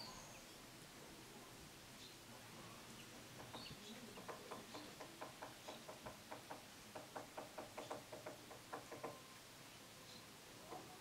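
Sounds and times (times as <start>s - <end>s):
woodpecker tapping on wood: 3.4s - 9.2s.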